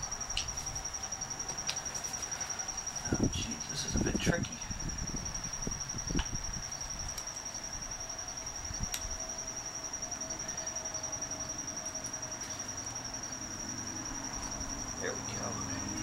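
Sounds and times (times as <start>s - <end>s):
insect trilling: 0.0s - 16.0s.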